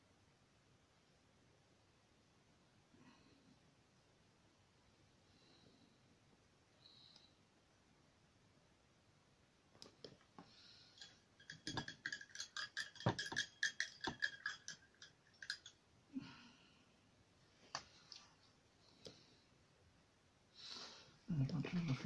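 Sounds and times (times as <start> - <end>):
clicks and knocks of hard objects: 11.0 - 15.8.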